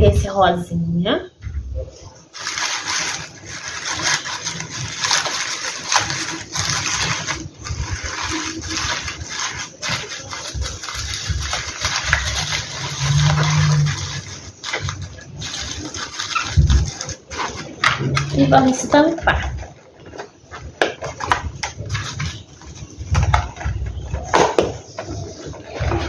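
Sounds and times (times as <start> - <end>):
tissue paper rustling and crinkling: 1.8 - 26.0.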